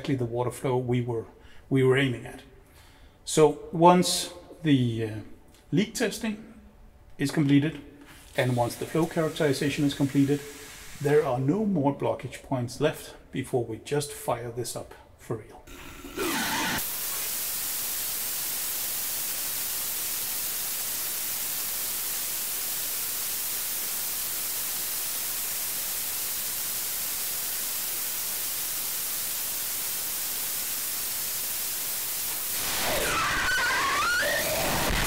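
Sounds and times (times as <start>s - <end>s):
rocket engine exhaust hiss: 8.1s - 11.7s, 15.7s - 35.0s.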